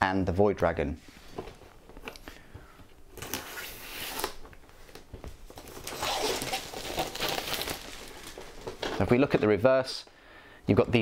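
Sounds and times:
plastic wrap crinkling and tearing: 0:03.1 - 0:09.1.

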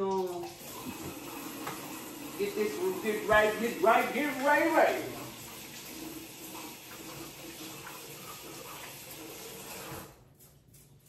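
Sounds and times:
tap running into sink: 0:00.0 - 0:10.1.

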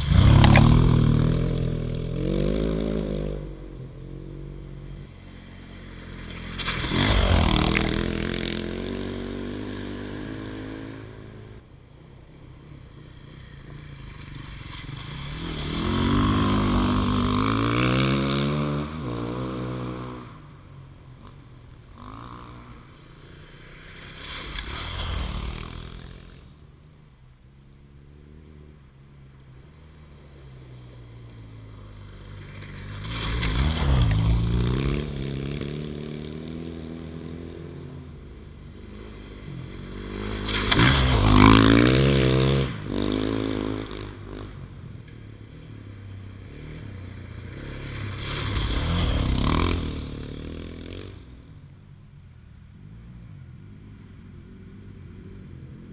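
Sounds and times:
water and gravel noise: 0:00.0 - 0:02.0, 0:06.1 - 0:08.2
motorcycles revving past: 0:00.0 - 0:11.7, 0:12.4 - 0:26.8, 0:28.0 - 0:51.8.

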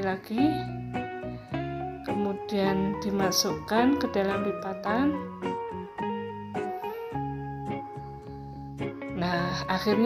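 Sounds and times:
plucked guitar tune: 0:00.0 - 0:10.0.

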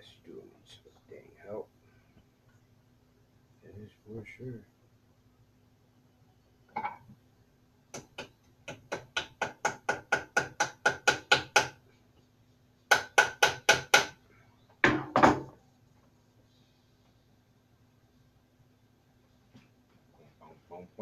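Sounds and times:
pliers tapping nails into wood: 0:07.9 - 0:11.8.

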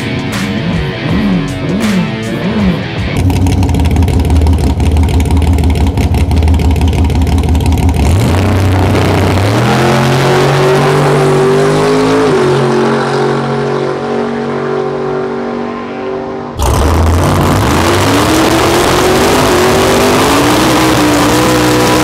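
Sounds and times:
race car engine revving: 0:00.0 - 0:22.0
car launching and accelerating: 0:08.0 - 0:15.8, 0:16.5 - 0:22.0.

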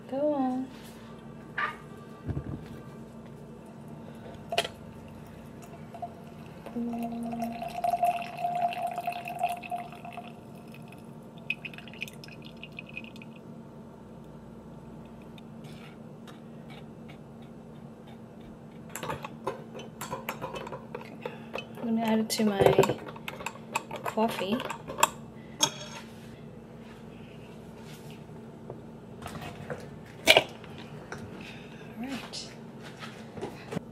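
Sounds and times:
coffee pouring into glass mug: 0:04.5 - 0:13.4.

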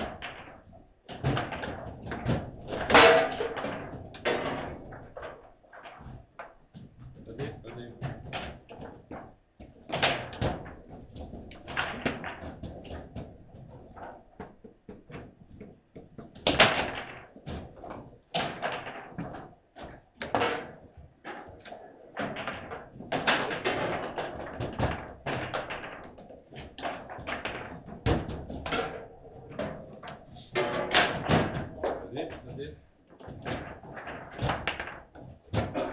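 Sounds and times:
table football ball clacking: 0:08.0 - 0:32.1.

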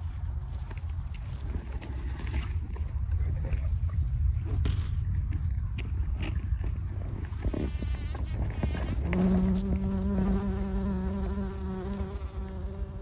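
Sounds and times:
bumblebee buzzing in flight: 0:07.7 - 0:13.0.

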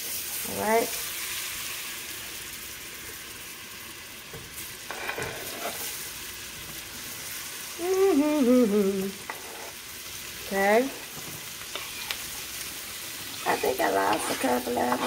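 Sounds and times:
butter and oil sizzling: 0:00.0 - 0:15.0
onion scraped off cutting board: 0:04.9 - 0:06.0, 0:13.5 - 0:15.0
person humming: 0:07.8 - 0:09.2.

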